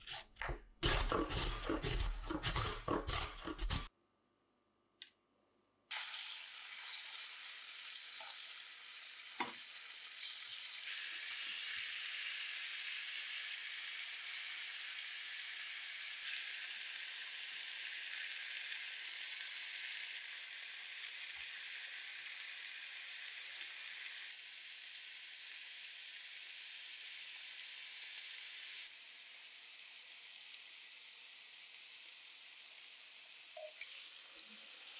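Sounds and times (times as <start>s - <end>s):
chicken sizzling in frying pan: 5.9s - 34.9s.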